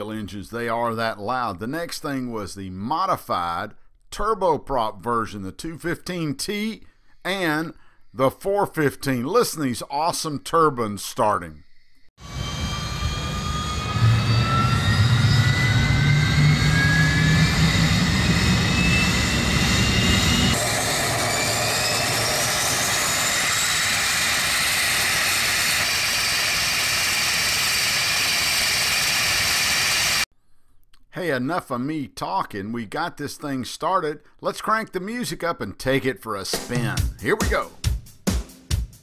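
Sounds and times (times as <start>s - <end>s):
turbine whine rising in pitch: 12.2s - 30.3s.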